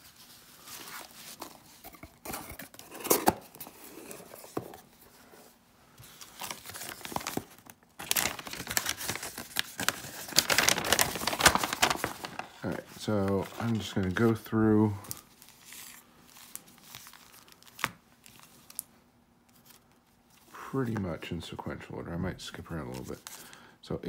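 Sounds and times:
paper insert crinkling: 0.0 - 5.2, 6.0 - 18.9, 19.5 - 21.7, 22.5 - 23.6
packing peanuts rustling: 6.1 - 18.9.

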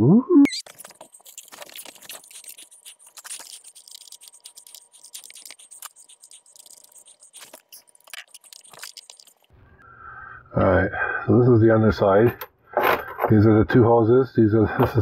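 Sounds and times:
fast scratching scraping and clicking: 0.6 - 9.5.

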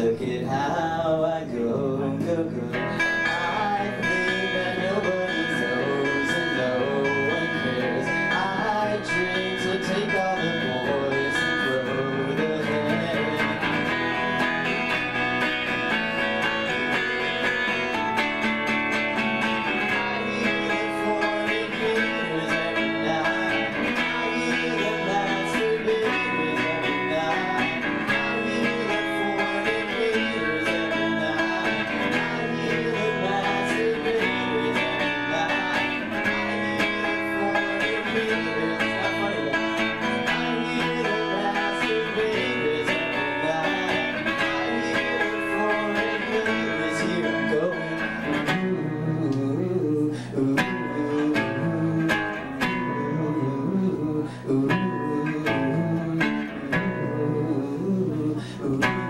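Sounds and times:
live rock band playing: 2.3 - 57.5.

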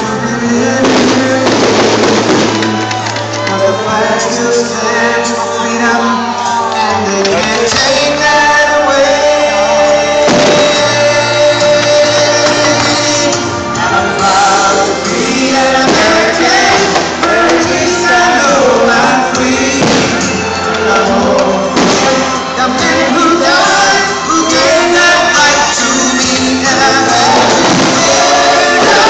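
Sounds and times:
loud music with singing: 0.0 - 29.0
fireworks bangs: 0.6 - 3.6, 9.9 - 29.0.

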